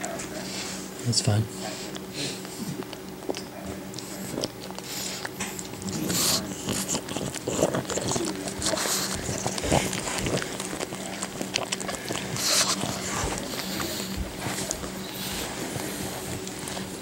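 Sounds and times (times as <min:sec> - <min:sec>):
dog licking and sniffing: 0:00.0 - 0:17.0
faint low hum: 0:00.0 - 0:17.0
puppies squeaking: 0:06.1 - 0:15.8.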